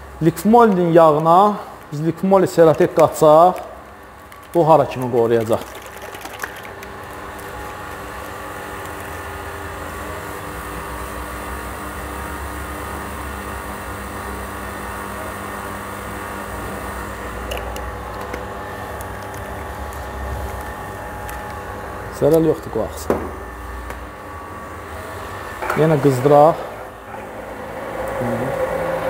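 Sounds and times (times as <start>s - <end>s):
electric motor humming: 5.8s - 29.0s.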